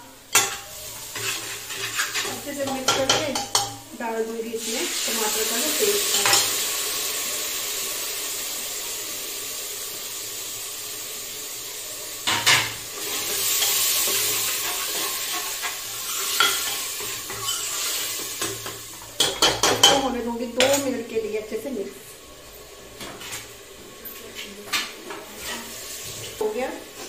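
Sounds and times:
masala sizzling in oil: 0.0 - 27.0
spoon scraping pot: 0.4 - 3.8, 14.4 - 20.0, 25.4 - 26.2.

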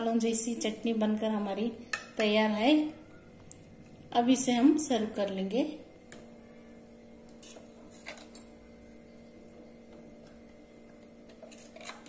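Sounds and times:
faint steady hum: 0.0 - 12.0
metal spoon scraping jar and bowl: 7.4 - 8.5, 11.3 - 12.0.

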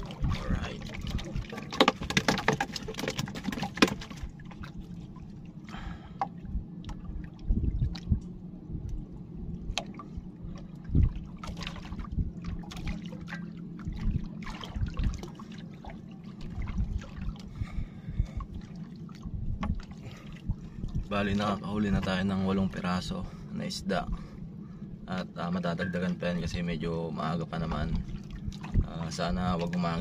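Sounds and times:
steady low hum: 0.0 - 30.0
water lapping against hull: 0.0 - 30.0.

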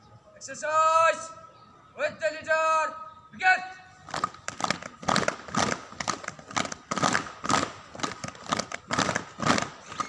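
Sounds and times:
claps and landings in unison: 4.1 - 9.8.

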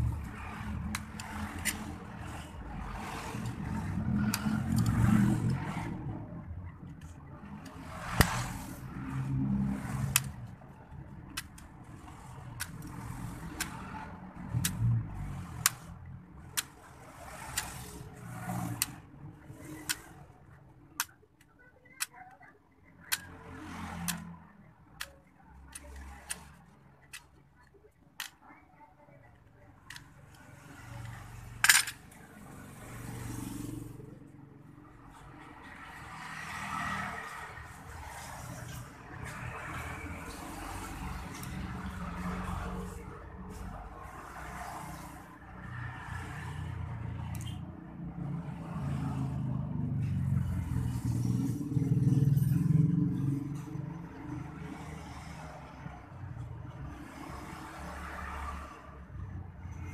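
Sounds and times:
knife cutting plastic clicks: 0.8 - 1.9, 12.5 - 13.9, 14.5 - 14.8.

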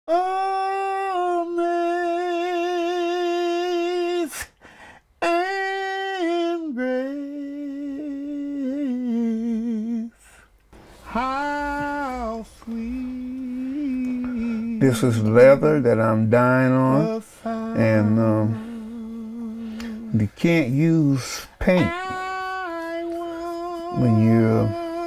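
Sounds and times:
person humming a melody: 0.1 - 4.5, 5.2 - 10.2, 11.1 - 14.9, 16.8 - 20.2, 21.7 - 25.0.

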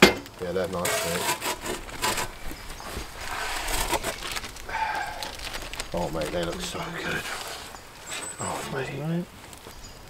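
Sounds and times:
pizza scraping into oven: 0.6 - 4.6.

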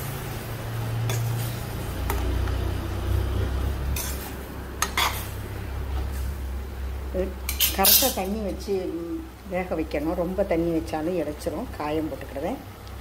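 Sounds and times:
metal spoon clinking against pot: 4.0 - 5.3, 7.5 - 8.4.

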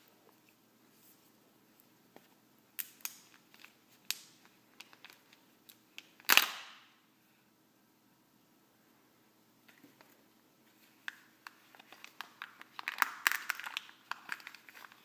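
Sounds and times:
plastic wrapper crinkling and tearing: 2.8 - 6.8, 11.0 - 15.0.

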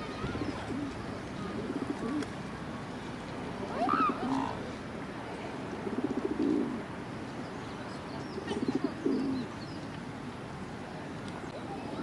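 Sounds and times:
pigeon cooing: 1.5 - 2.3, 5.8 - 6.8, 8.4 - 9.5.

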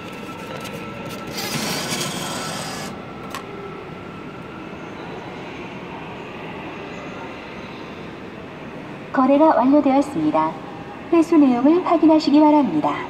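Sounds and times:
motorised whirr: 1.1 - 3.0.

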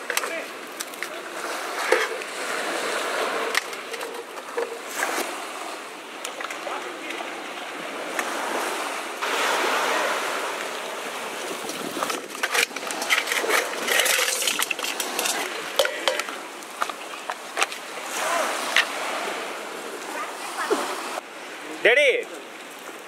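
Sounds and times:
sea surf washing: 0.0 - 23.0
crab shells cracking in steel bowl: 12.1 - 16.1.

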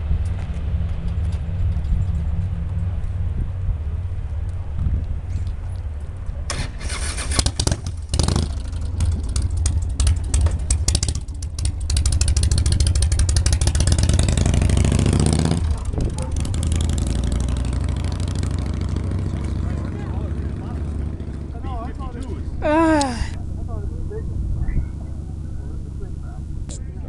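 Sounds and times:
propeller plane taking off: 0.0 - 27.0.

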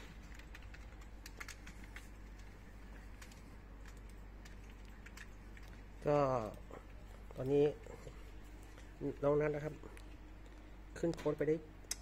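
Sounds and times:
computer keyboard typing: 0.0 - 6.6
steady low hum: 0.0 - 12.0.

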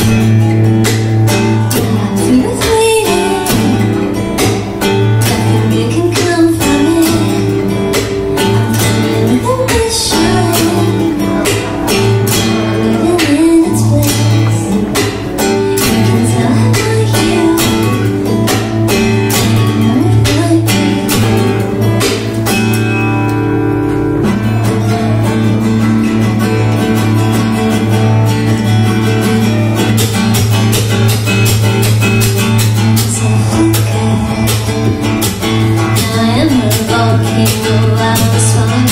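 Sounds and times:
acoustic guitar strumming: 0.0 - 38.9
woman singing: 1.3 - 22.2, 33.0 - 38.9.

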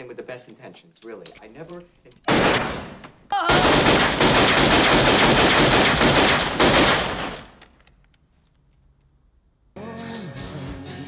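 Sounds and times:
pistol fire: 2.3 - 7.6.

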